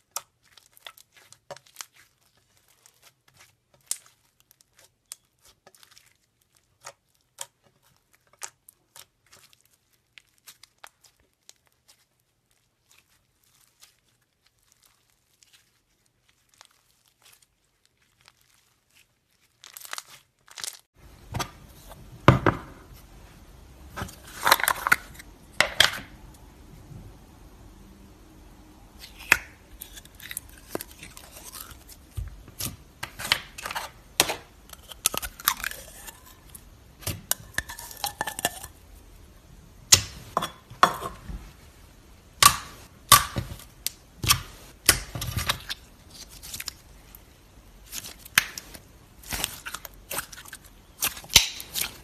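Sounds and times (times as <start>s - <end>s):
slime crunching and popping: 0.0s - 20.9s, 29.0s - 38.8s, 47.8s - 52.0s.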